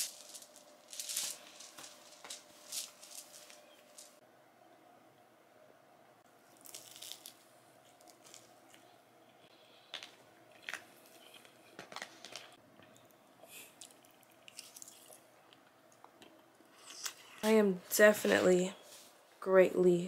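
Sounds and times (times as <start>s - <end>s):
person crunching and chewing food: 6.4s - 8.8s, 9.8s - 17.4s.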